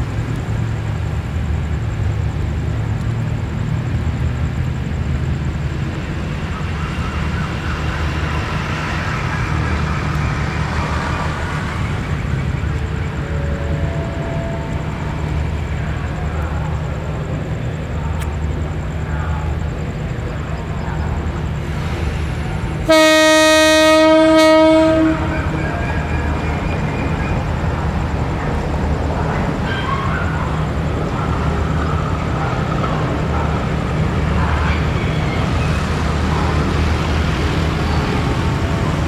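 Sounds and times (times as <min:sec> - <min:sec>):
locomotive idling: 0:00.0 - 0:39.0
faint high-pitched sounds: 0:05.8 - 0:22.9.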